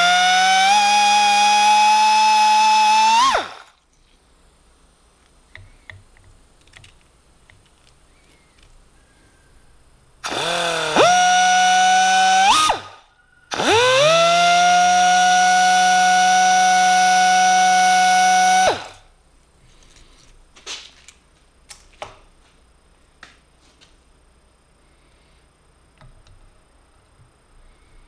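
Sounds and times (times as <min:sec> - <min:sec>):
pneumatic die grinder whine: 0:00.0 - 0:03.7, 0:10.2 - 0:19.0.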